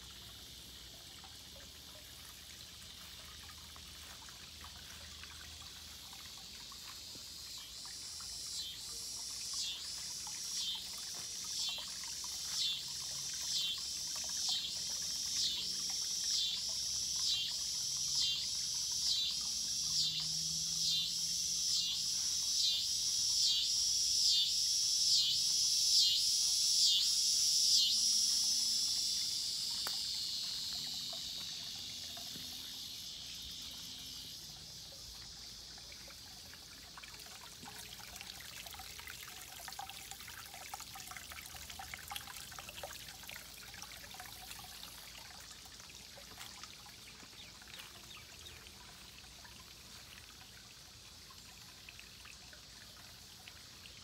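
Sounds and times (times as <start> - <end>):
water feature trickling: 0.0 - 54.0
cicada buzzing: 6.7 - 35.8.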